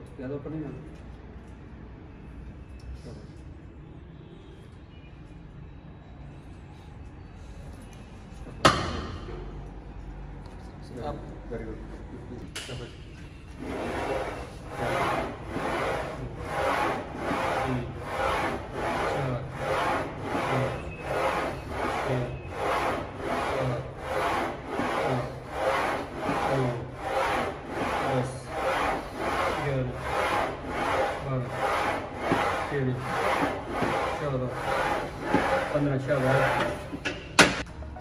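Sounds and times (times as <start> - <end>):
machine sled rasping on rails: 13.5 - 37.0.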